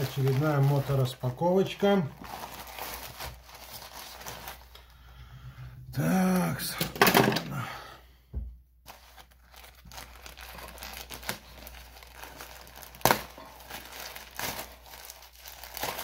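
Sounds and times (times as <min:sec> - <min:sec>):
plastic package crinkling and tearing: 0:00.0 - 0:05.0, 0:08.9 - 0:16.0.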